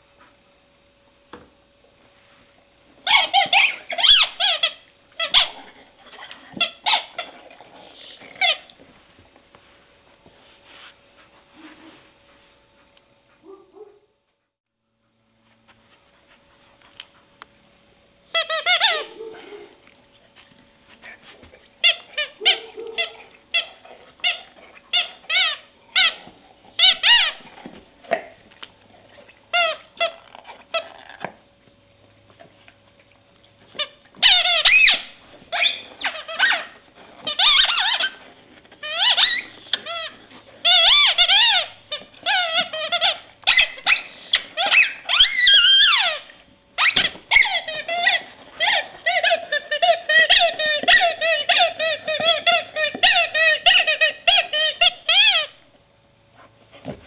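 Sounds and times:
squeaky dog toy squeaking: 3.0 - 5.6, 18.3 - 19.1, 21.8 - 27.5, 34.2 - 38.2, 38.8 - 55.6.

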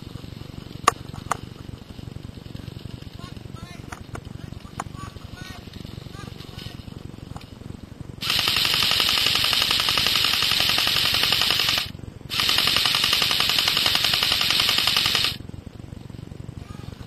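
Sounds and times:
airsoft rifle firing full auto: 8.2 - 15.4.

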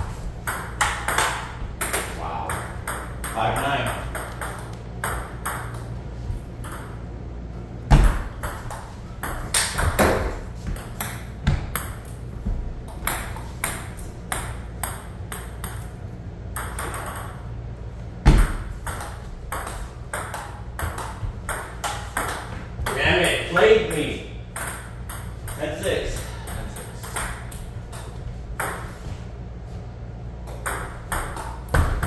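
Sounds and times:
ping-pong ball clicking: 0.5 - 5.8, 6.6 - 7.0, 24.6 - 25.6.

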